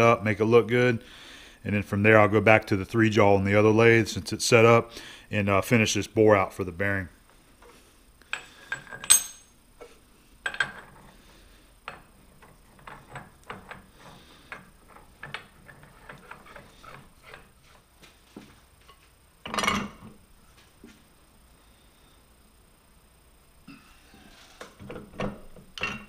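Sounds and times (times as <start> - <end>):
metal nut and washer clinking: 8.3 - 9.5, 19.4 - 20.0
ringing metal clank: 9.0 - 9.5.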